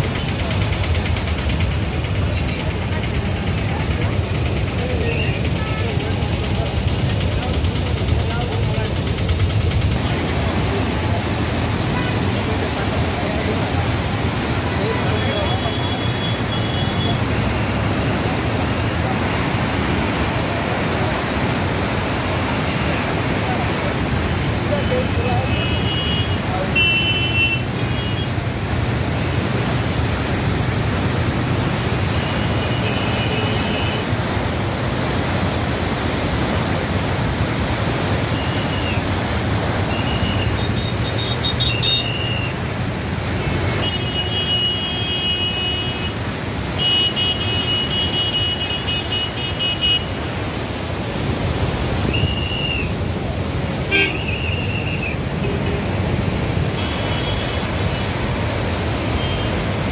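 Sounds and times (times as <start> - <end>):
flood water rushing: 0.0 - 59.9
vehicle horns honking: 15.0 - 17.2, 25.4 - 28.3, 39.9 - 42.5, 43.7 - 46.2, 46.8 - 50.1, 53.9 - 54.8, 56.7 - 58.1, 59.1 - 59.6.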